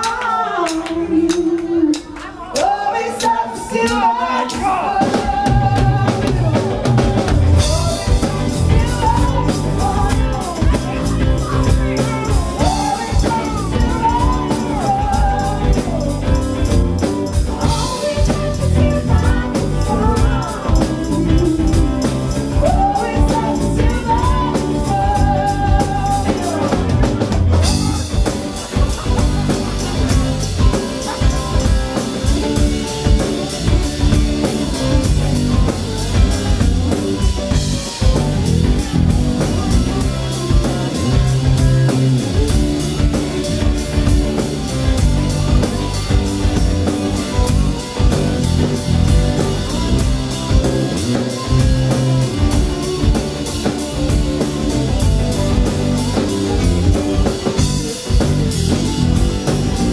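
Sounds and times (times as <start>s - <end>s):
woman singing: 0.0s - 28.2s
live rock band playing: 0.0s - 59.9s.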